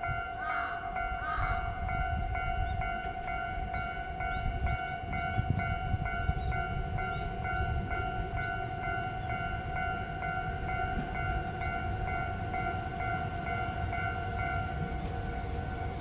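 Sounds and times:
level crossing warning bell ringing: 0.0s - 16.0s
low rumble of diesel railcar: 0.0s - 16.0s.

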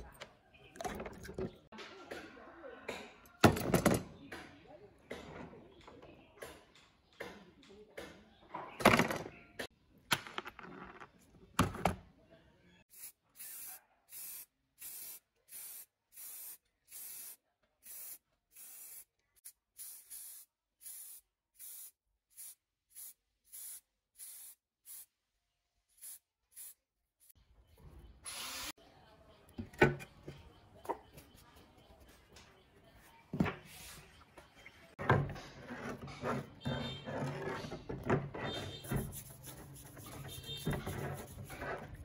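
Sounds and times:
spray paint hissing: 12.9s - 25.2s, 26.0s - 26.8s.

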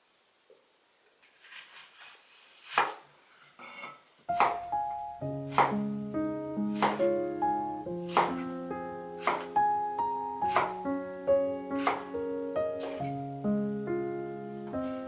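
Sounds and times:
knife slicing onion on wooden board: 1.4s - 3.0s, 4.3s - 4.7s, 5.4s - 5.9s, 6.6s - 7.2s, 8.0s - 8.5s, 9.2s - 9.6s, 10.4s - 10.8s, 11.7s - 12.2s, 12.8s - 13.2s
gentle piano music: 4.3s - 15.0s.

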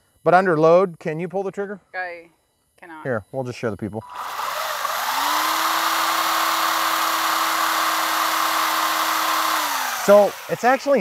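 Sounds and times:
electric motor and gearbox whining: 4.0s - 11.0s.

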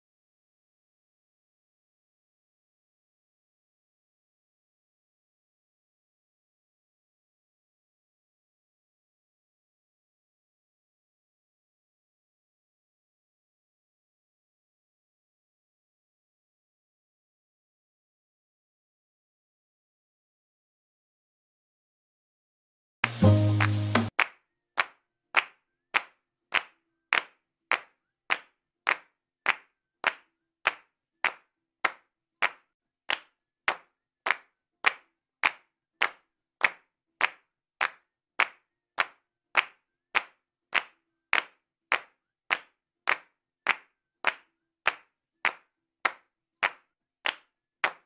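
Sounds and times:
sharp handclaps: 23.0s - 48.0s.

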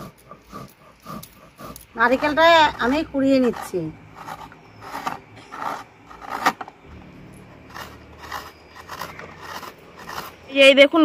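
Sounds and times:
metal scraper scraping coconut: 0.0s - 11.0s.

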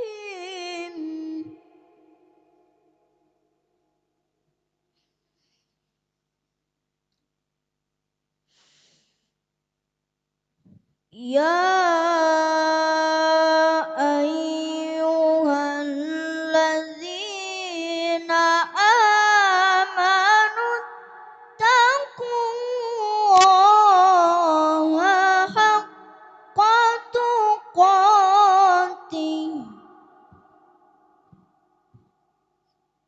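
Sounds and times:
boy reciting melodically: 0.0s - 2.3s, 11.2s - 30.3s.

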